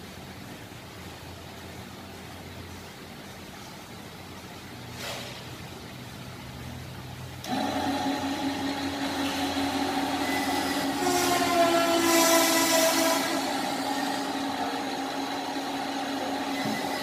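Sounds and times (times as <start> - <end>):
hiss: 4.9 - 5.6, 11.0 - 13.9
crane motor whining: 7.4 - 17.0
higher wavering whine: 8.5 - 17.0.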